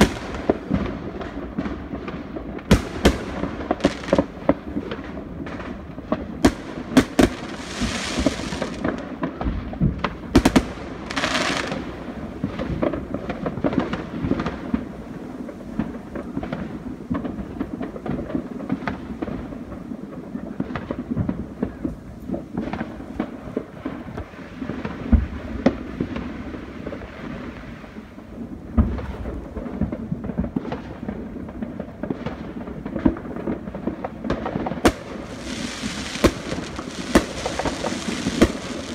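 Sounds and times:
crackling hisses: 0.0 - 9.3, 10.0 - 17.0, 32.2 - 38.9
fireworks bangs and pops: 0.0 - 38.9.

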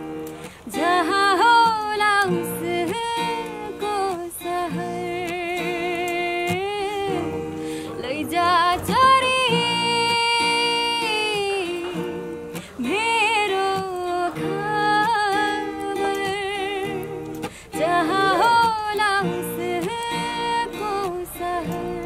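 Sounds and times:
acoustic guitar: 0.0 - 22.0
woman singing: 0.0 - 22.0.

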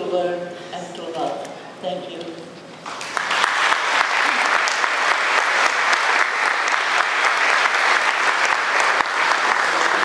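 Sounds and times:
audience applauding: 2.8 - 10.0.

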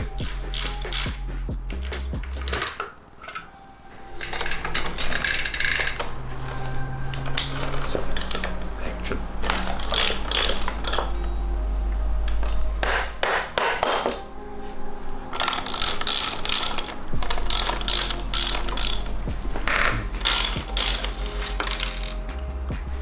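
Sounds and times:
ratchet mechanism clicking: 0.0 - 3.5, 4.2 - 6.6, 9.4 - 11.2, 15.3 - 22.4.

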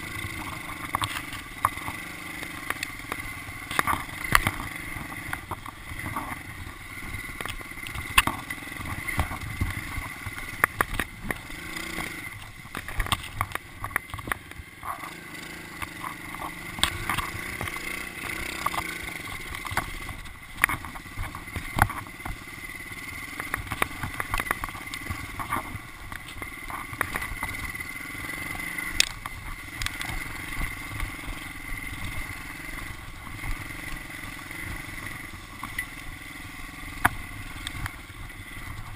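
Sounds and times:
small motorbike engine running: 0.0 - 38.9
bike knocks and rattles: 0.4 - 22.5.

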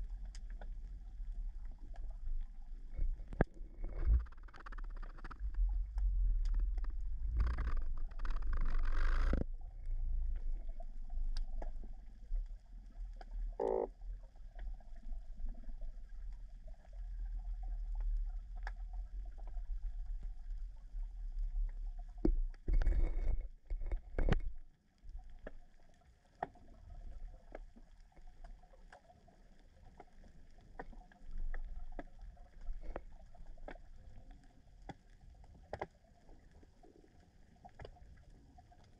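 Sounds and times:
steady low underwater noise: 0.0 - 38.9
sharp underwater clicks: 3.0 - 9.5.

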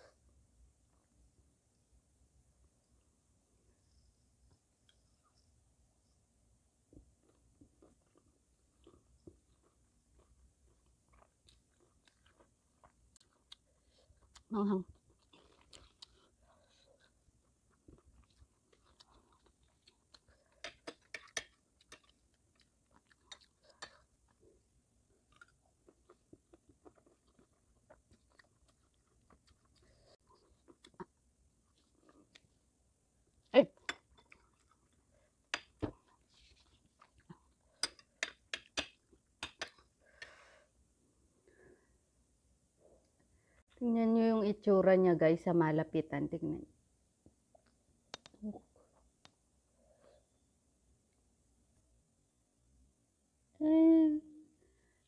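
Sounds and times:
faint chewing: 6.9 - 32.7, 33.7 - 40.6.

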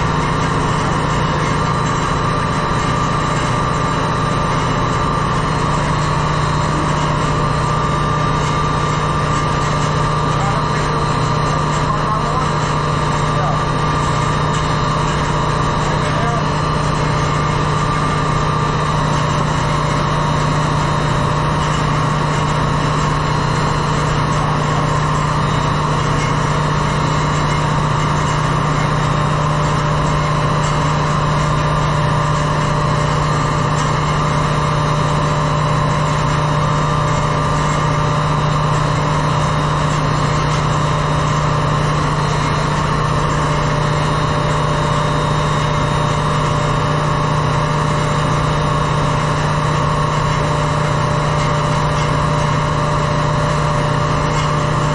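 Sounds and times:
engine room machinery drone: 0.0 - 54.9.

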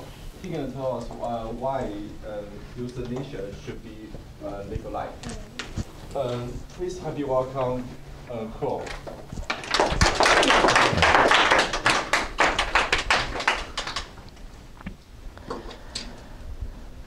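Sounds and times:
small audience applauding: 9.4 - 14.4.

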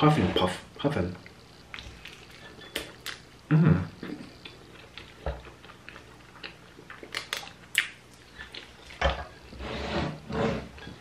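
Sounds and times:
wet chewing and mouth noises: 4.0 - 9.5.

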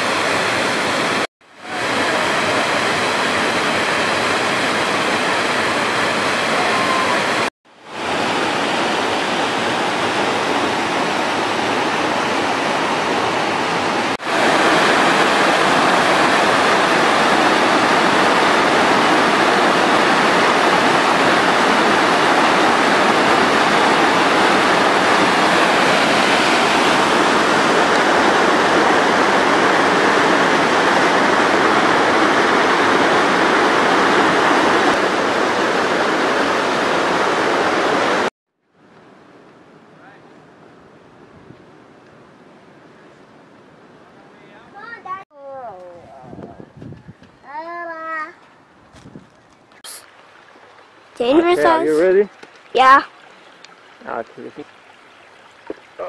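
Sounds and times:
waterfall rushing: 0.0 - 38.3, 49.8 - 56.0.

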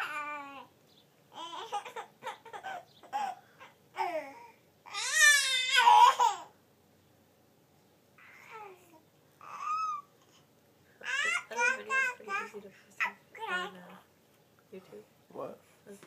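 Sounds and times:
baby babbling and squealing: 8.2 - 10.1, 11.0 - 13.7.

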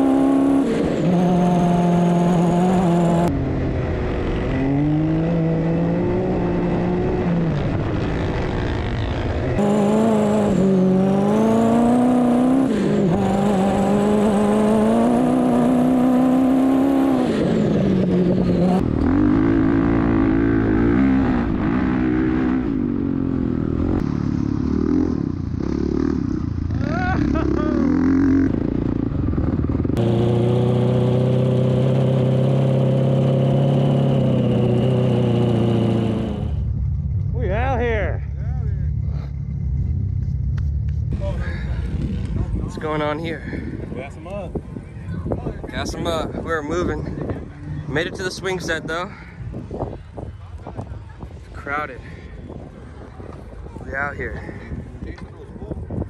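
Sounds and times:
dirt bike engine revving: 0.0 - 36.7
wind rush: 41.1 - 56.0.

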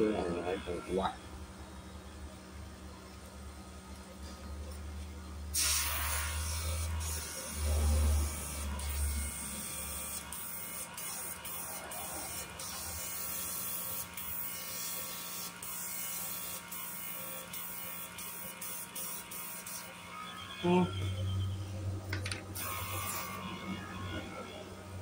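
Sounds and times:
small electric motor whining: 5.5 - 25.0.

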